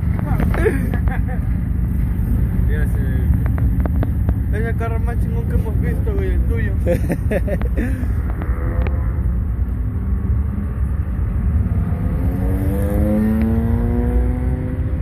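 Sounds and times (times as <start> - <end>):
steady low rumble: 0.0 - 12.4.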